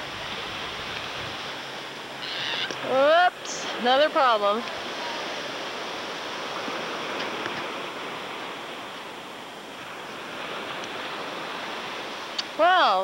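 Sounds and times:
distant gentle surf: 0:00.0 - 0:13.0
light breeze: 0:00.0 - 0:13.0.

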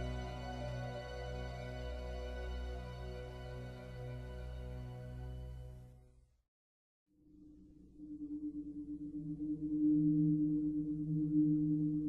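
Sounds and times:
slow background music: 0:00.0 - 0:06.3.

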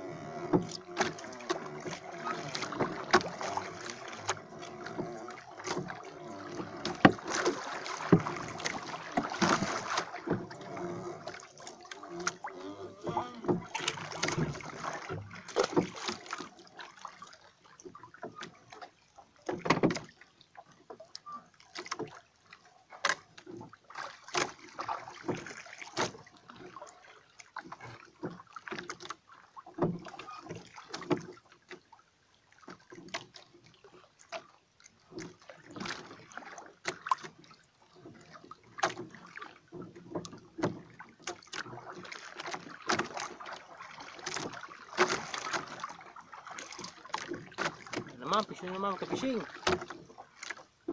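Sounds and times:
boat knocking: 0:00.0 - 0:16.8, 0:19.4 - 0:20.2, 0:29.7 - 0:31.5, 0:35.0 - 0:50.9
water lapping against boat hull: 0:00.0 - 0:50.9.

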